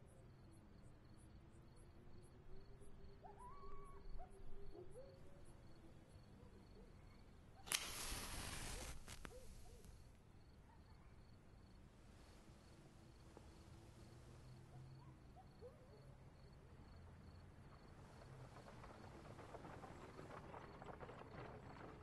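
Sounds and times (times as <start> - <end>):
crickets chirping: 0.3 - 19.1
match striking and flaring: 7.7 - 10.0.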